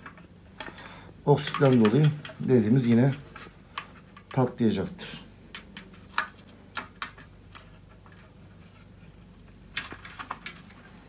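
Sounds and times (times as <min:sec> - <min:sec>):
hands clicking and tapping metal frame: 0:00.0 - 0:04.5.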